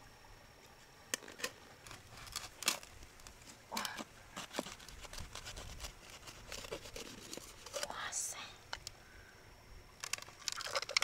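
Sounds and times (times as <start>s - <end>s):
wet scraping: 1.2s - 7.9s.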